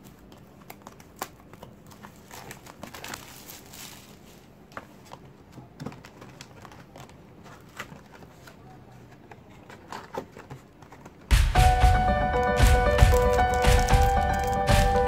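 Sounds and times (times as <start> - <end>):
plastic shrink-wrap crinkling and tearing: 0.6 - 4.5.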